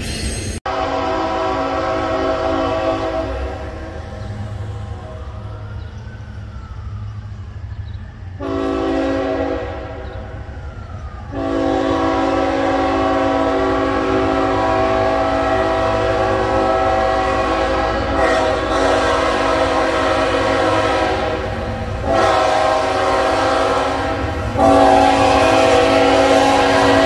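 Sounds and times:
low train rumble: 0:00.0 - 0:27.0
locomotive air horn blasts: 0:00.7 - 0:04.0, 0:08.4 - 0:10.2, 0:11.3 - 0:27.0.

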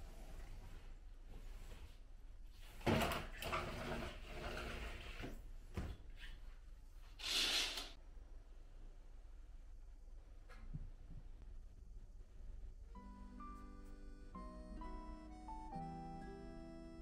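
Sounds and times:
sliding window rolling open: 0:02.9 - 0:05.4.

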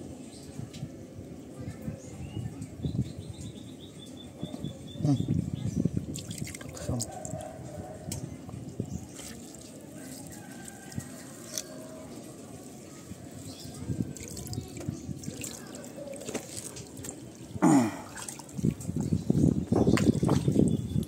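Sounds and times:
water dripping and trickling: 0:05.7 - 0:21.0
small water splashes: 0:06.0 - 0:07.4, 0:09.0 - 0:19.2, 0:19.9 - 0:20.8.

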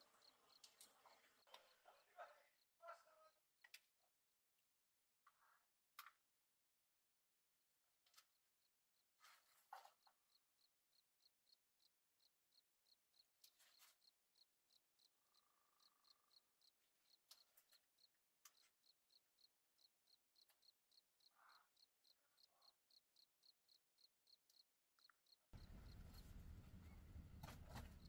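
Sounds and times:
cricket chirping: 0:00.0 - 0:02.2, 0:10.6 - 0:28.0.

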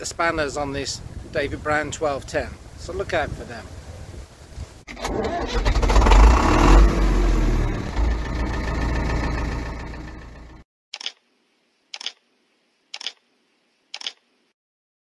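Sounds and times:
engine rumble: 0:05.0 - 0:10.6
camera shutter clicks: 0:11.0 - 0:11.2, 0:12.0 - 0:12.2, 0:13.0 - 0:13.2, 0:13.9 - 0:14.2.

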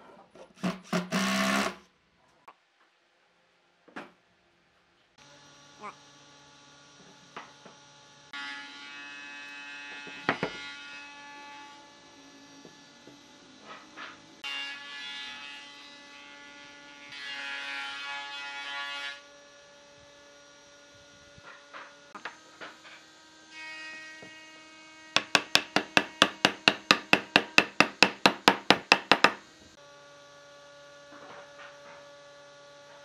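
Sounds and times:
sharp knocks: 0:25.2 - 0:29.4.

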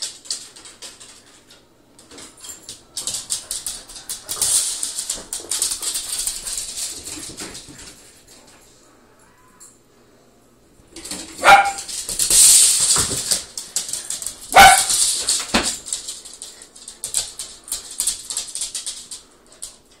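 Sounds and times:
dog claws clicking on wooden floor: 0:00.0 - 0:08.4, 0:10.9 - 0:20.0
dog barking sharply: 0:11.4 - 0:11.9, 0:14.5 - 0:15.0.

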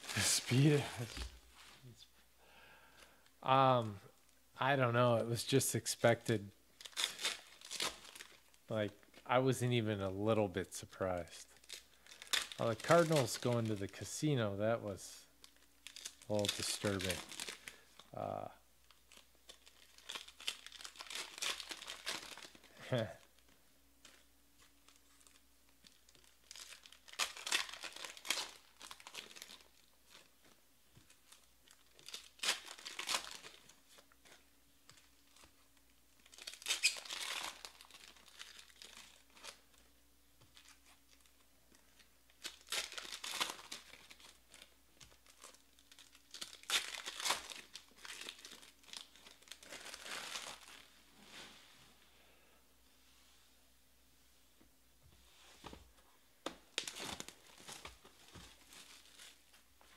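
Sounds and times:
foil packs being torn and crinkled: 0:06.8 - 0:08.6, 0:11.4 - 0:14.0, 0:15.4 - 0:24.2, 0:24.8 - 0:35.5, 0:36.2 - 0:39.8, 0:40.5 - 0:50.9, 0:56.7 - 0:59.9.

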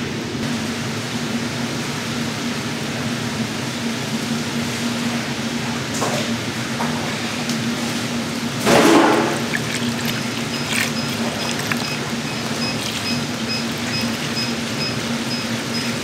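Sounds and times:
kitchen machinery hum: 0:00.0 - 0:16.0
liquid pouring: 0:08.6 - 0:16.0.

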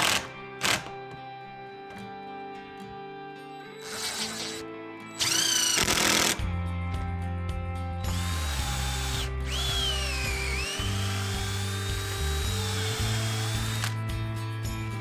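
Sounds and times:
background music with bass: 0:00.0 - 0:15.0
cordless drill boring into wood: 0:03.8 - 0:04.6, 0:05.2 - 0:06.4, 0:08.1 - 0:14.0.

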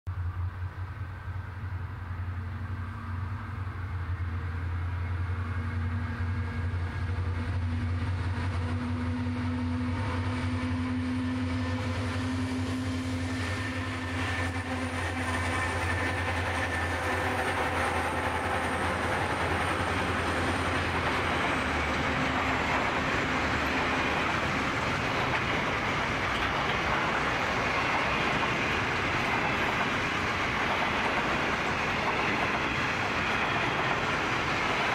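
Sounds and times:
diesel locomotive engine drone: 0:00.1 - 0:34.9
train wheels rushing on rails: 0:00.2 - 0:34.9.

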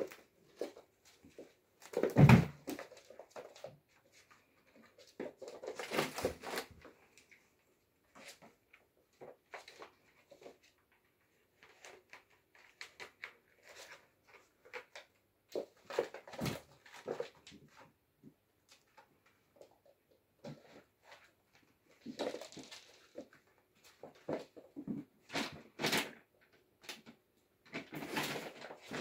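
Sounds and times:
kittens scampering on wooden floor: 0:00.0 - 0:07.4, 0:18.6 - 0:26.0.

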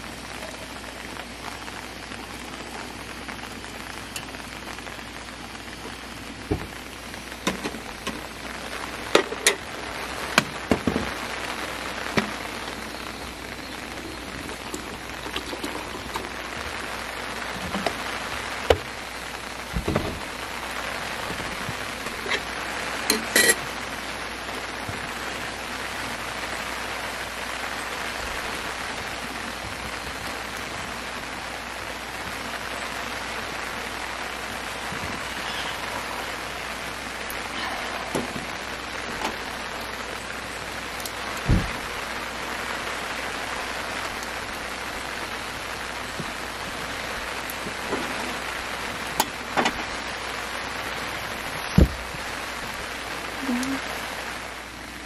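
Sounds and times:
steady rain falling: 0:00.0 - 0:55.0
pot and mug clinking: 0:23.1 - 0:23.6.

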